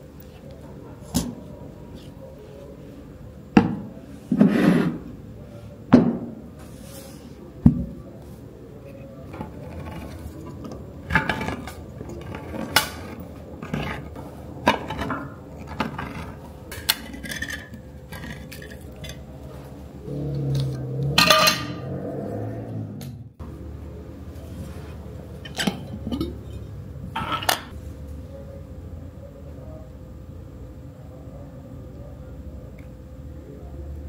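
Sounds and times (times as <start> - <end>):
metal grinding: 8.9 - 19.4, 25.4 - 27.7.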